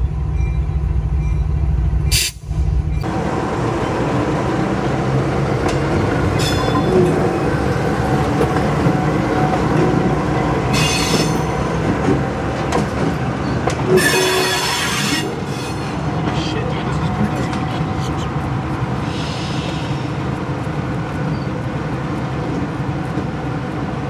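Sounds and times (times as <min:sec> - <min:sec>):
diesel locomotive engines rumbling: 0:00.0 - 0:24.0
wheel flanges squealing: 0:06.3 - 0:08.0, 0:10.6 - 0:12.0, 0:13.4 - 0:20.2, 0:21.1 - 0:21.7.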